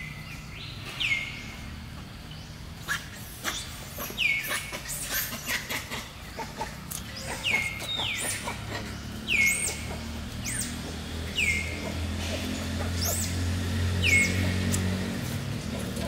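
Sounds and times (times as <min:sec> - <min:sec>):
high-pitched whistled animal calls: 0:07.0 - 0:12.0.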